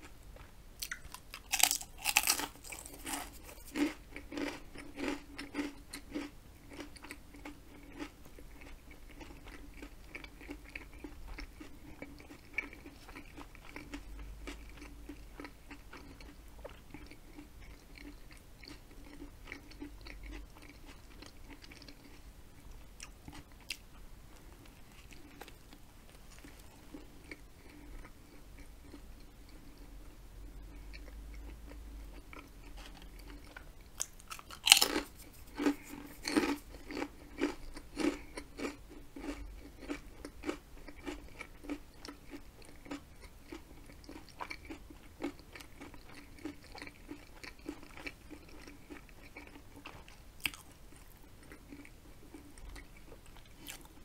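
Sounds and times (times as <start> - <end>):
chewing food: 0.0 - 54.0
crunchy bite: 0.8 - 6.3, 32.8 - 41.2.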